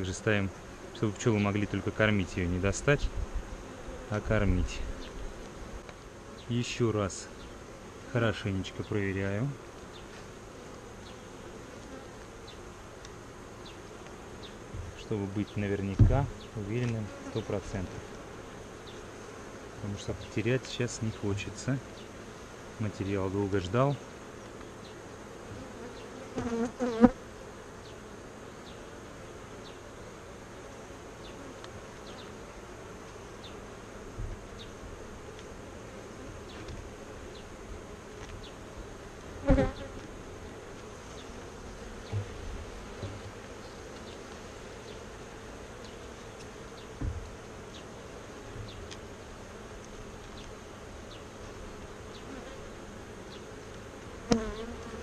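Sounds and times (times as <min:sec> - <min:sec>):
honeybees buzzing: 0:00.0 - 0:55.0
knocks from handling hive: 0:14.7 - 0:15.0, 0:15.9 - 0:17.0, 0:42.0 - 0:44.2, 0:46.4 - 0:47.4, 0:54.2 - 0:55.0.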